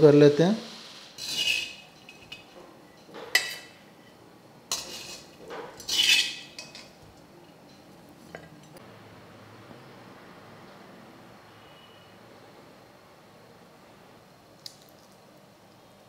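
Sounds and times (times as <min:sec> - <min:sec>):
metal spoon scraping a pan: 0:00.7 - 0:07.0.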